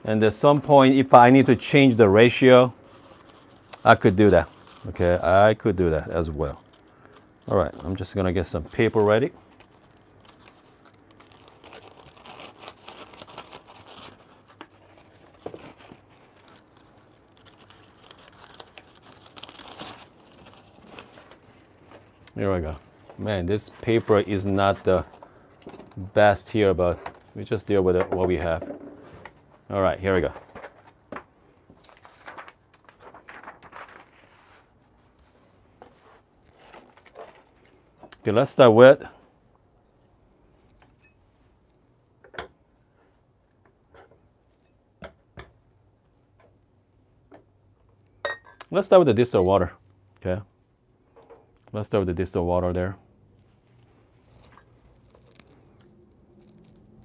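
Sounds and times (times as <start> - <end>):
paper filter rustling: 0.4 - 38.0, 53.3 - 57.0
gloved hand handling noises: 0.4 - 38.4, 52.7 - 57.0.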